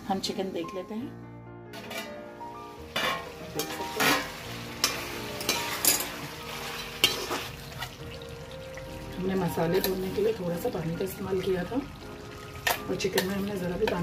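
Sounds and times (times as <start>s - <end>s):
metal spoon scraping cookware: 1.8s - 2.2s, 3.0s - 6.2s
light sizzle: 1.8s - 14.0s.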